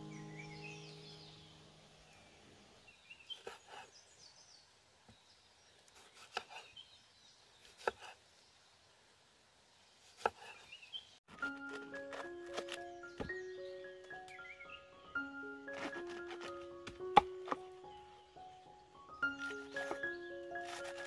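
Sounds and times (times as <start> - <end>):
music: 0.0 - 1.7, 11.3 - 21.0.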